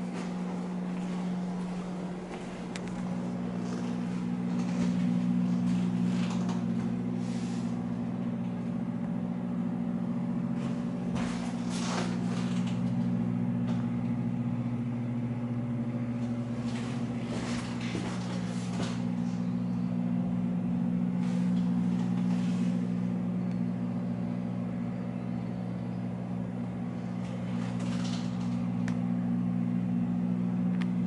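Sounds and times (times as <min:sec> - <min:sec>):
steady low hum: 0:00.0 - 0:31.0
faint scuffs and knocks: 0:10.6 - 0:12.5, 0:16.5 - 0:19.4.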